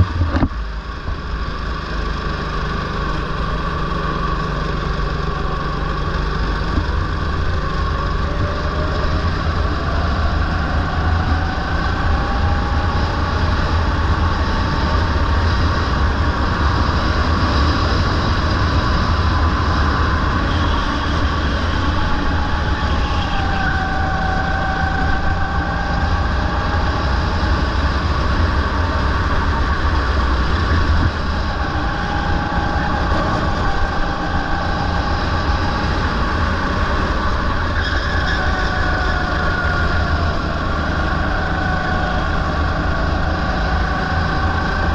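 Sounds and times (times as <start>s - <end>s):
go-kart engine revving: 0.0s - 44.9s
low rumble: 0.0s - 44.9s.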